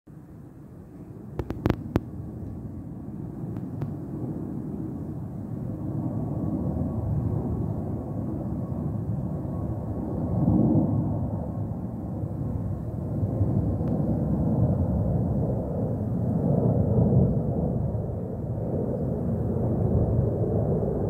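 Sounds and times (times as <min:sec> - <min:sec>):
sharp clicks: 0:01.4 - 0:02.1.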